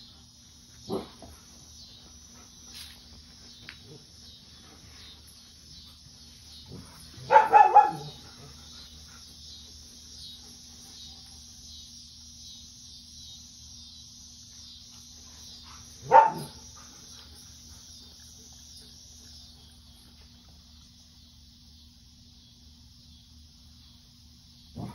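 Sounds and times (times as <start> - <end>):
cicadas droning: 0.0 - 24.9
dog bark: 0.9 - 1.1, 7.2 - 8.2, 16.0 - 16.6.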